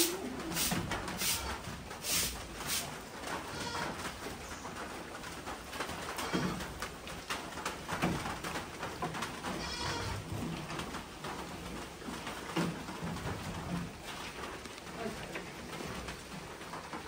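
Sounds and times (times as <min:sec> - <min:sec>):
goat bleating: 0:03.5 - 0:04.0, 0:09.6 - 0:10.2.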